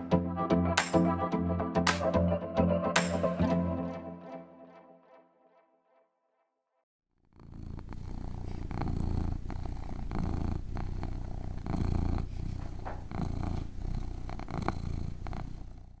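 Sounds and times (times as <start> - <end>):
kitten purring: 7.2 - 16.0.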